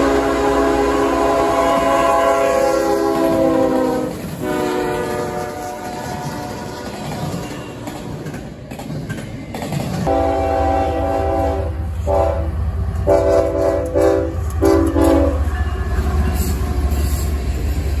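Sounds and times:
locomotive air horn blasts: 0.0s - 6.8s, 10.1s - 15.6s
freight train rolling past: 0.0s - 18.0s
low engine and rail rumble: 0.0s - 18.0s.

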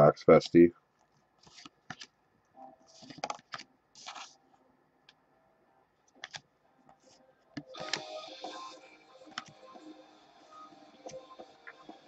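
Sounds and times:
cards being flipped through: 1.4s - 2.1s, 2.9s - 4.4s, 6.1s - 6.4s.

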